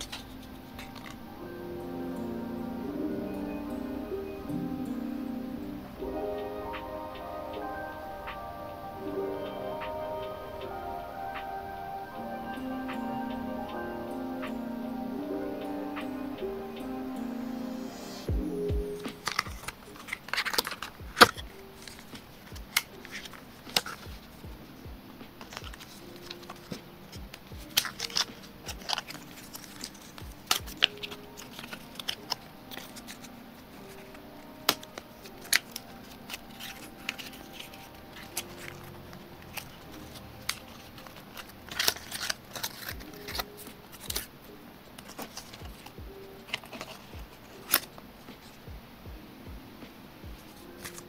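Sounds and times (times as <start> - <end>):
paper clicks and rustles: 0.0 - 1.2, 19.0 - 24.4, 25.3 - 48.7, 50.4 - 51.0
soft background music: 0.0 - 51.0.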